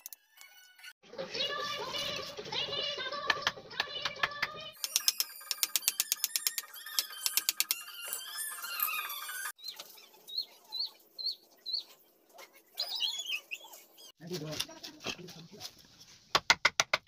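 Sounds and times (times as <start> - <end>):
small bird chirping: 4.8 - 12.0.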